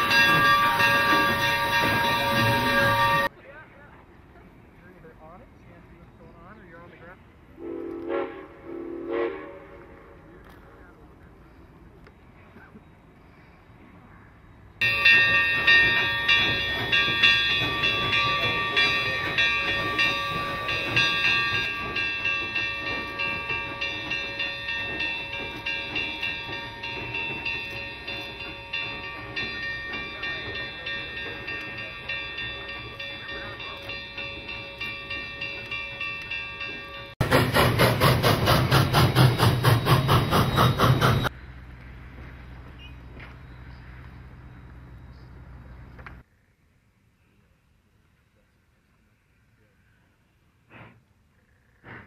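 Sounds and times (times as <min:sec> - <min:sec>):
high ringing tones: 0:00.0 - 0:03.3, 0:14.8 - 0:37.2
steam locomotive exhaust chuffs: 0:14.8 - 0:45.0.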